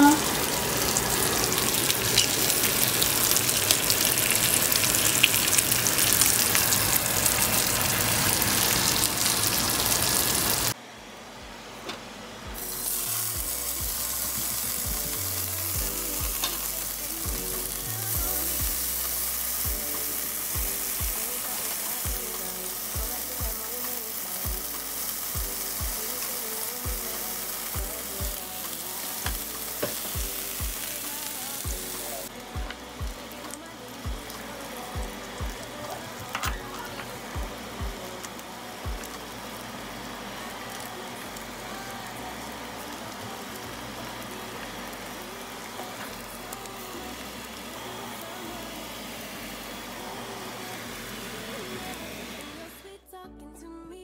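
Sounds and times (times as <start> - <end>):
peppers frying in pan: 0.0 - 10.8, 12.6 - 52.6
sausage sizzling in skillet: 0.0 - 10.8, 12.6 - 52.7.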